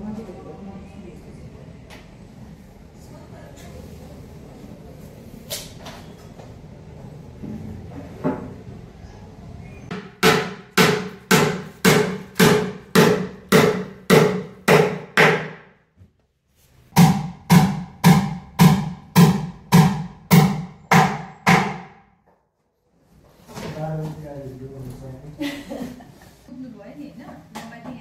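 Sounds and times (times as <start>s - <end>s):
hammer blows ringing: 9.9s - 15.6s.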